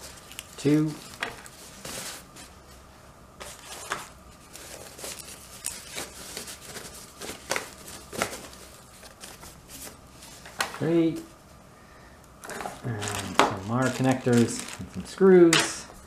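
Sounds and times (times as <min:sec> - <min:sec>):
packaging wrapper crinkling: 0:00.0 - 0:02.3, 0:03.5 - 0:10.0, 0:12.4 - 0:15.9.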